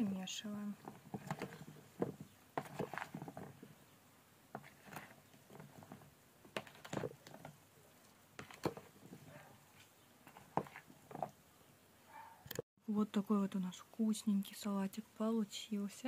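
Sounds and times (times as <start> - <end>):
spoon stirring salad in bowl: 0.8 - 3.8.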